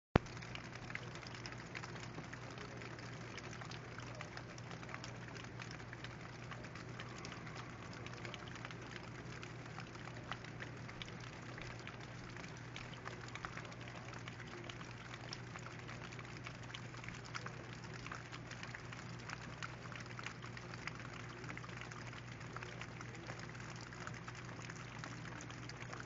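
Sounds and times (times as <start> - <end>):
gentle rain patter: 0.2 - 26.0
low steady hum: 0.2 - 26.0.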